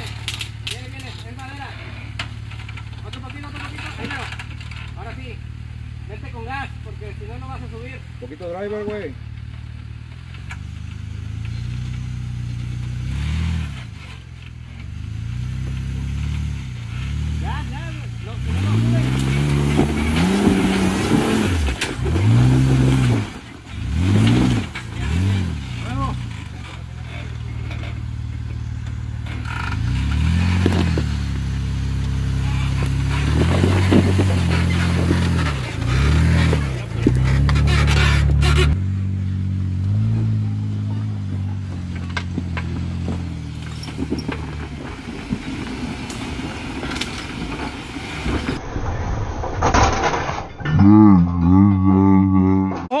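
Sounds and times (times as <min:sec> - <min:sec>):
rock scraping under vehicle: 0:00.0 - 0:05.3, 0:11.4 - 0:38.8, 0:41.3 - 0:51.0
engine idling and revving: 0:00.0 - 0:53.0.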